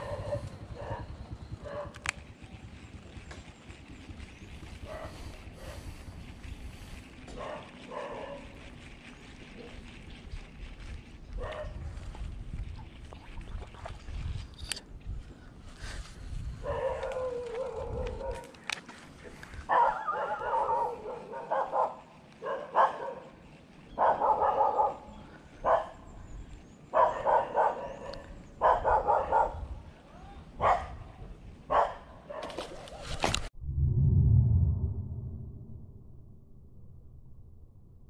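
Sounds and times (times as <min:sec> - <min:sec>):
sharp clicks: 0:01.8 - 0:04.8.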